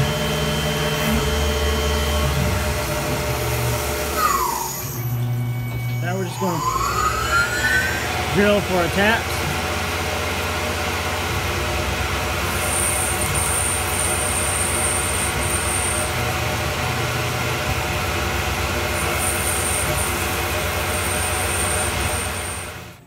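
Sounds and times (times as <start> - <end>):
high whine: 0.0 - 23.0
mill spindle drilling: 0.0 - 23.0.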